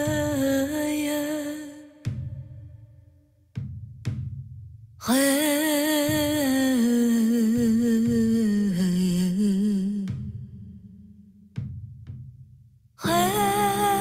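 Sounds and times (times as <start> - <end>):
low drum beats: 0.0 - 5.2, 5.9 - 14.0
hummed vocal note with vibrato: 13.0 - 14.0.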